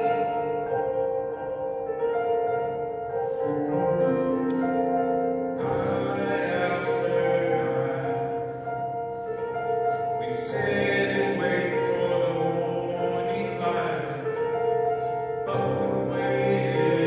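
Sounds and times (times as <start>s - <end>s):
piano accompaniment: 0.0s - 17.0s.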